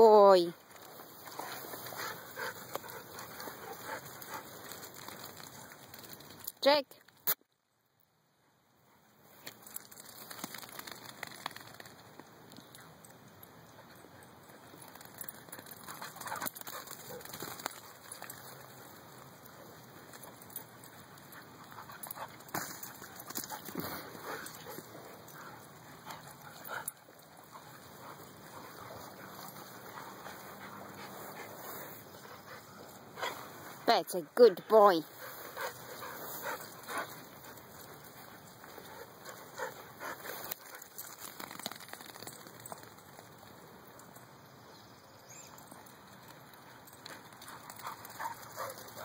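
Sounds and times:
dogs playing: 0.6s - 6.5s, 9.3s - 34.4s, 35.0s - 44.6s, 45.5s - 49.0s
dogs running and tussling: 0.6s - 6.5s, 9.5s - 12.2s, 14.5s - 33.8s, 35.1s - 43.5s, 46.2s - 49.0s.

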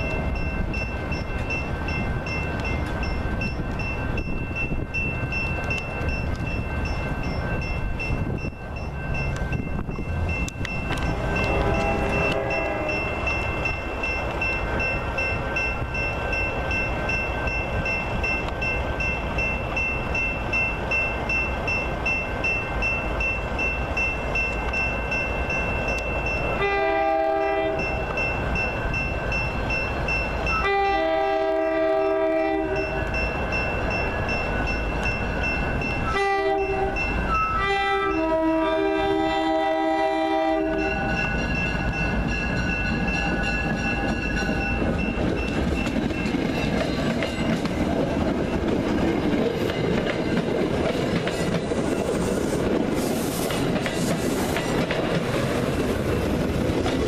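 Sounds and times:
crossing bell ringing: 0.0s - 52.9s
train horn blasts: 11.0s - 13.3s, 26.6s - 28.0s, 30.6s - 33.0s, 36.1s - 41.2s.

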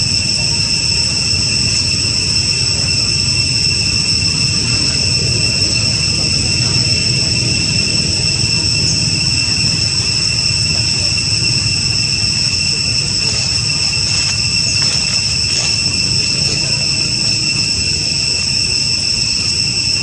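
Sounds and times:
low steady rumble: 0.0s - 19.9s
insects droning: 0.0s - 20.0s.

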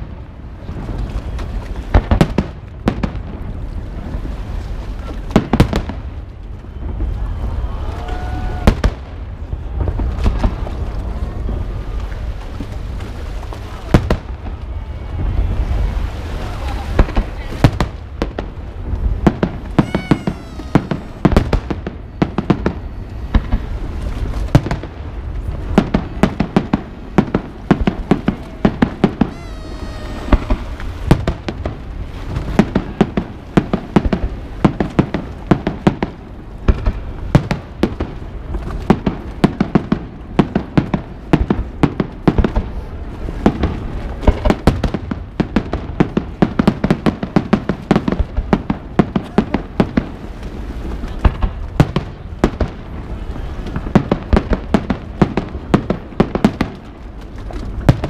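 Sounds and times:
fireworks bangs and crackles: 0.0s - 58.0s
whistling firework glides: 19.8s - 23.8s, 29.1s - 31.7s.

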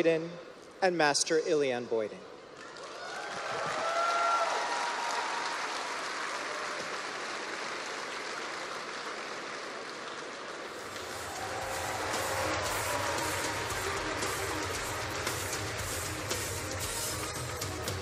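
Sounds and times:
large audience applauding: 2.5s - 18.0s
music: 10.8s - 18.0s.

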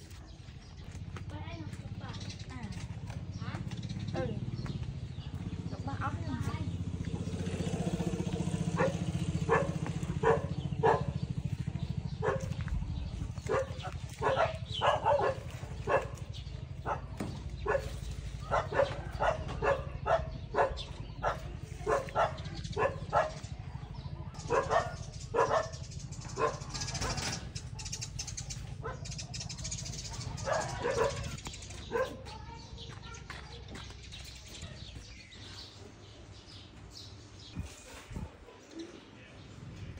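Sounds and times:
dog barking: 8.7s - 27.5s, 28.6s - 29.2s, 29.8s - 32.5s.

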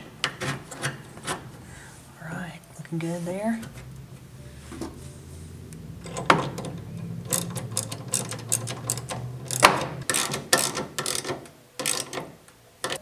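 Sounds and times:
hand ratchet clicking: 7.3s - 13.0s.

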